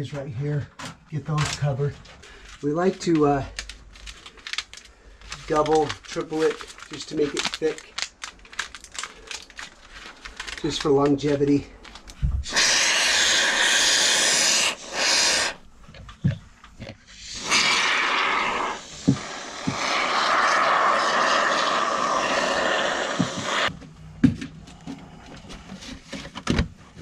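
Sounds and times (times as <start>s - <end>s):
aerosol spray can hissing: 12.4s - 15.6s, 17.1s - 23.7s
small knocks and handling noise: 23.7s - 27.0s.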